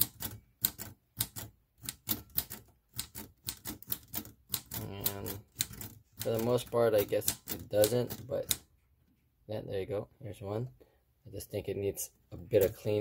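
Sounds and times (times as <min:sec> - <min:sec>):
manual typewriter keys clacking: 0:00.0 - 0:08.7.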